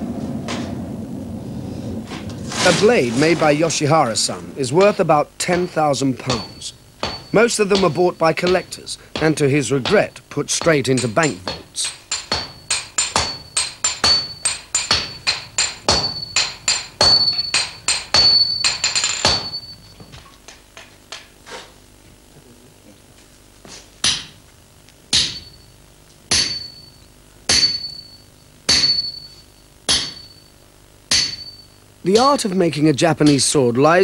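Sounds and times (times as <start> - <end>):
hammer striking metal on anvil: 4.8 - 19.8, 24.0 - 24.4, 25.1 - 30.5, 31.1 - 32.5.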